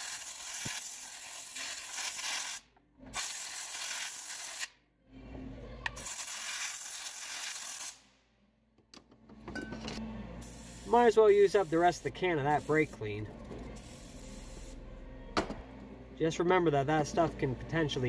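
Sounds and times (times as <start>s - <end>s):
compressed air hissing: 10.4s - 13.0s, 13.8s - 14.8s.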